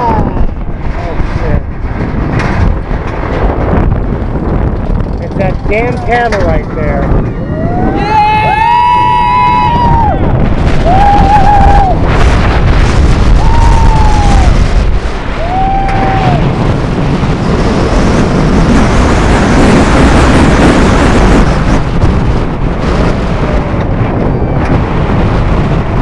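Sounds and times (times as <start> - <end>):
roller coaster rumble: 0.0 - 26.0
wind buffeting microphone: 0.0 - 26.0
riders yelling: 7.4 - 10.2.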